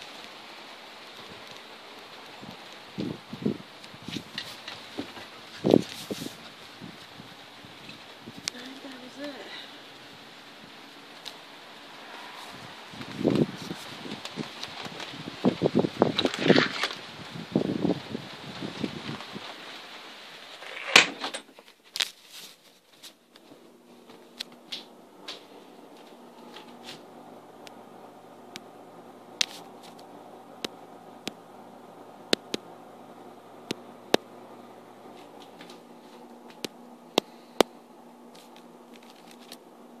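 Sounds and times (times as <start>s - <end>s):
faint steady hum: 0.0s - 40.0s
sharp clicks and taps: 32.3s - 32.6s.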